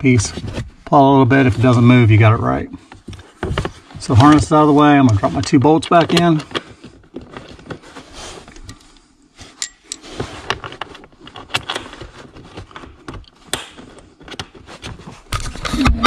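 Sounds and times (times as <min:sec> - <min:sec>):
light clicks and knocks of handling: 0:05.0 - 0:14.6.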